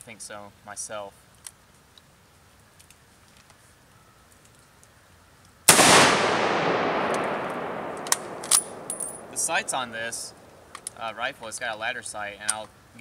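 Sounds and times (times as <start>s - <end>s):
rifle shot echoing: 5.7s - 10.8s.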